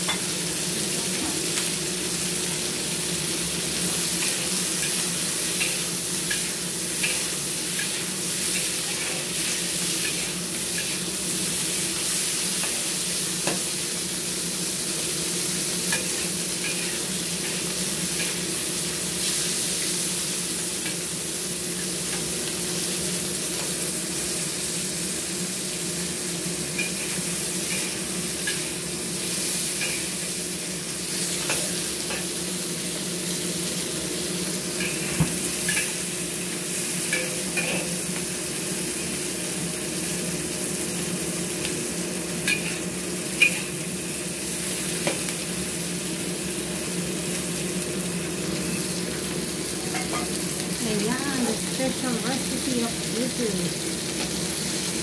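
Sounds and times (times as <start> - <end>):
prawns sizzling in hot oil: 0.0 - 55.0
spatula scraping a wok: 4.0 - 13.6, 15.8 - 18.5.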